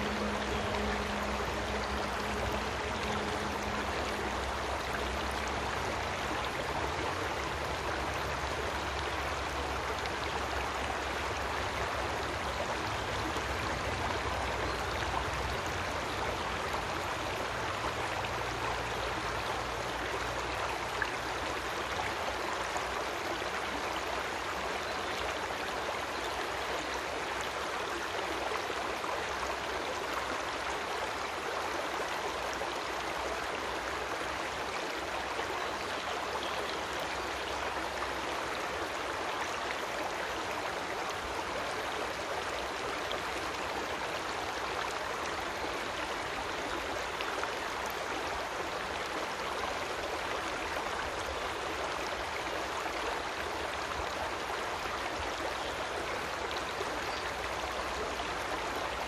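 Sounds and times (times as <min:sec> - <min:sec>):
creek water rushing: 0:00.0 - 0:59.0.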